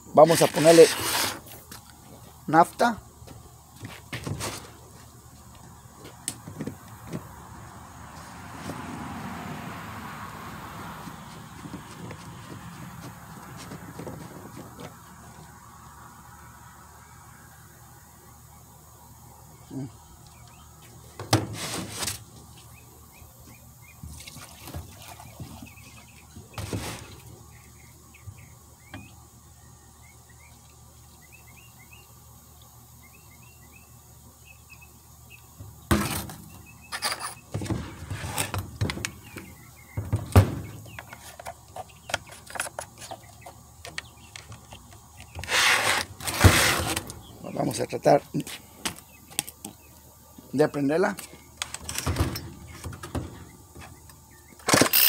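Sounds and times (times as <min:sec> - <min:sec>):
small birds chirping: 0:16.9 - 0:21.3, 0:22.4 - 0:37.7, 0:38.4 - 0:45.5, 0:47.1 - 0:54.7.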